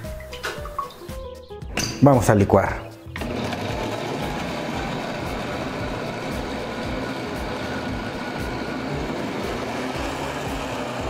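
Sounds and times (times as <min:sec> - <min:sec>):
blender motor running: 0:03.1 - 0:11.0.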